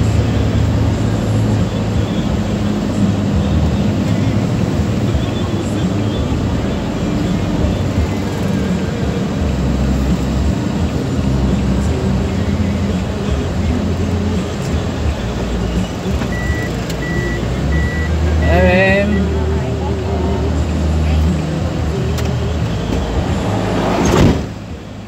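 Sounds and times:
van engine and road rumble: 0.0s - 25.0s
short high electronic beep: 16.3s - 19.3s.

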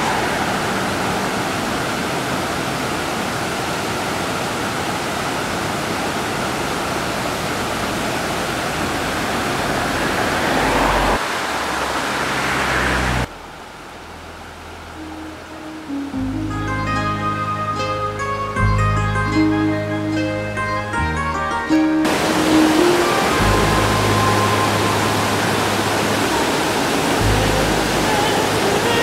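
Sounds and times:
river water rushing over weir: 0.0s - 18.6s, 21.7s - 29.0s.

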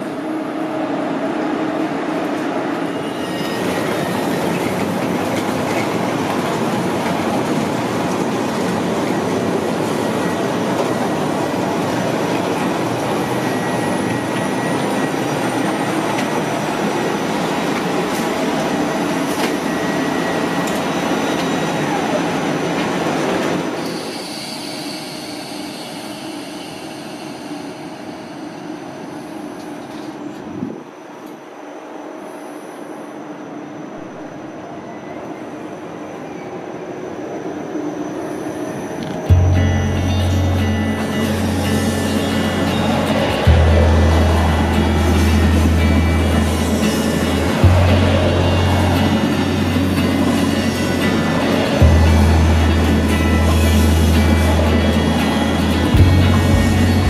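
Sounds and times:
train wheels rushing on rail: 0.0s - 57.0s
wheel squeal: 2.7s - 7.6s, 8.5s - 22.5s
high whine falling in pitch: 39.3s - 57.0s.

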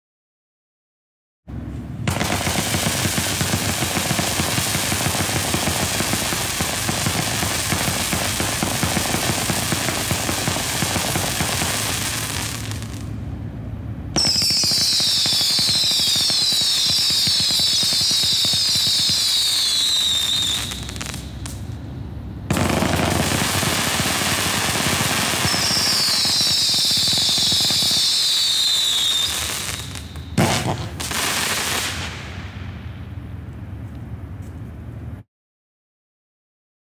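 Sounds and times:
firework barrage crackling: 2.0s - 13.2s, 14.1s - 33.4s
firework whistles falling in pitch: 14.2s - 21.7s, 22.5s - 32.2s
sharp firework bang: 28.9s - 33.0s.

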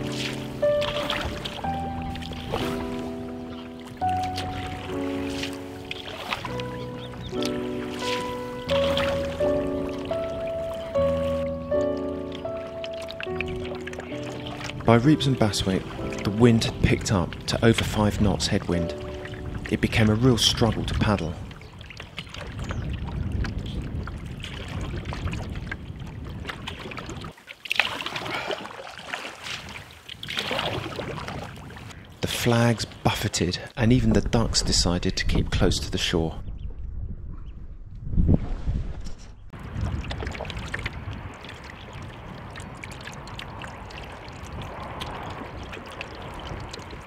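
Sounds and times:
paddle strokes knocking: 0.0s - 20.8s
water splashing: 0.0s - 33.0s, 39.5s - 47.0s
wind buffeting microphone: 13.2s - 27.3s, 29.5s - 33.0s, 33.8s - 47.0s.

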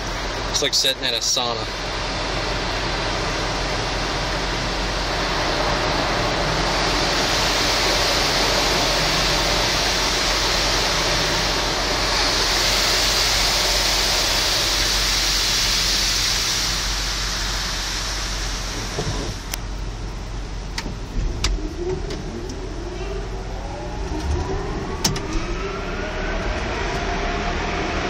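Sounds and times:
water spraying on car: 0.0s - 28.0s.

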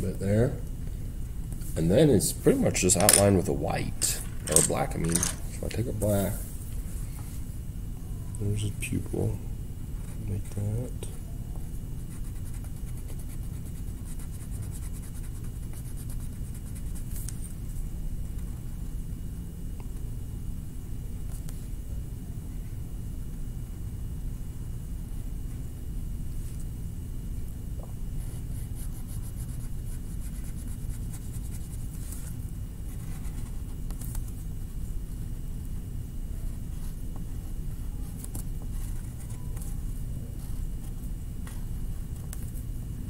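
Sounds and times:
steady low hum: 0.0s - 43.0s
pen scratching on paper: 12.1s - 17.0s, 28.6s - 32.3s.

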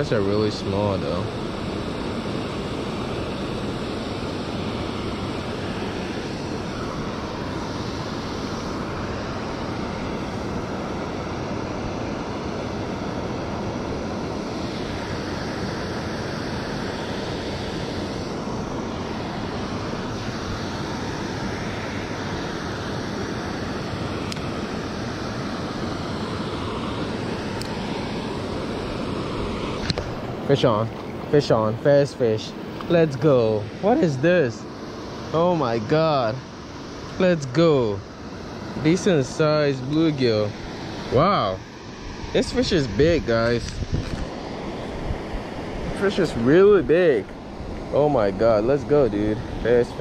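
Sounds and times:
wind on microphone: 41.1s - 50.0s.

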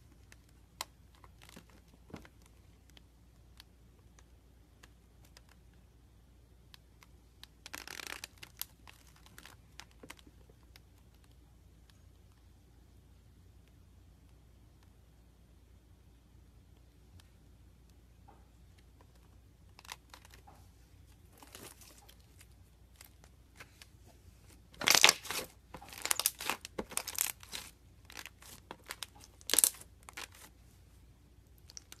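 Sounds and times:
gel crackling through metal grid: 7.6s - 10.7s, 24.7s - 30.5s, 31.5s - 32.0s.

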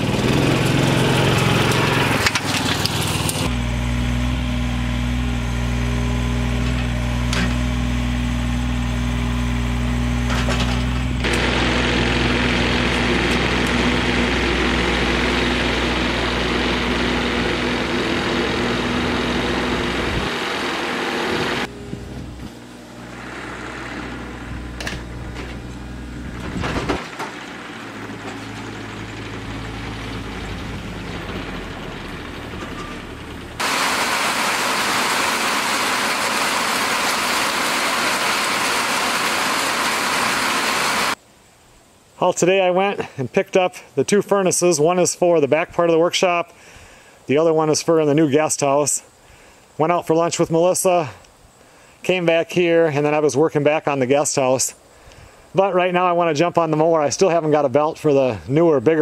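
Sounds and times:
small tractor engine humming: 0.0s - 41.2s
utility vehicle driving: 0.0s - 41.2s.

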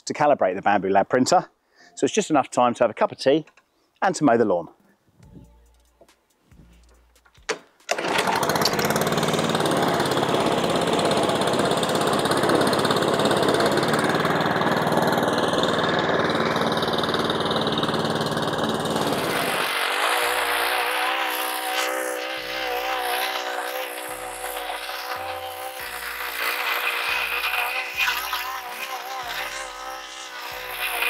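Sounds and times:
lawn mower engine running: 7.9s - 31.0s.

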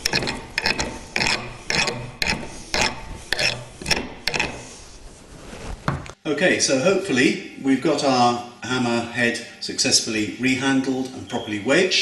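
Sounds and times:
rasp filing wood: 0.0s - 5.0s.

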